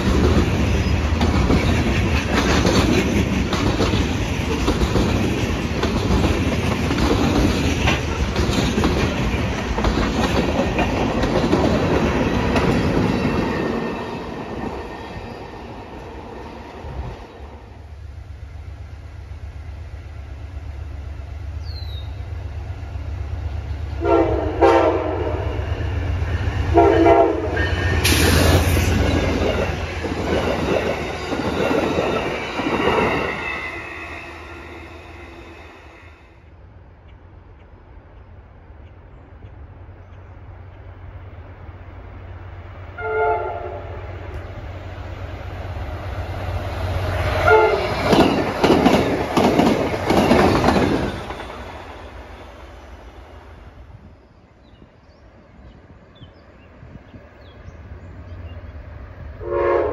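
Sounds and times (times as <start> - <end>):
freight train cars rolling past: 0.0 - 59.9
passenger train cars rushing past: 0.0 - 59.9
train horn blasts: 24.0 - 25.7, 26.7 - 28.4, 43.0 - 44.1, 47.3 - 48.1, 59.4 - 59.9.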